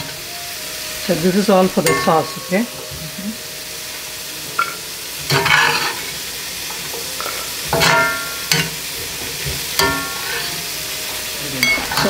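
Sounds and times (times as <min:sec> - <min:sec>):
vegetables sizzling in a skillet: 0:00.0 - 0:12.0
metal spoon clinking against pan: 0:01.8 - 0:02.7, 0:04.6 - 0:06.1, 0:06.9 - 0:08.8, 0:09.5 - 0:10.6, 0:11.6 - 0:12.0.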